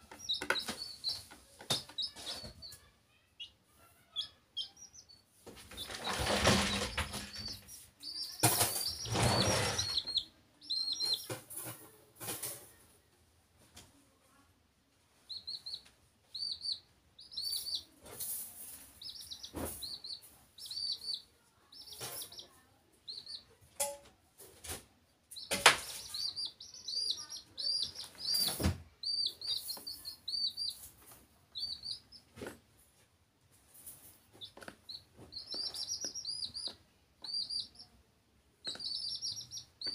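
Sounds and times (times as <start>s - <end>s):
baby chicks peeping: 0.0s - 12.9s, 15.0s - 23.8s, 24.4s - 39.9s
loud knocks and rustles: 5.4s - 7.8s, 8.4s - 10.2s.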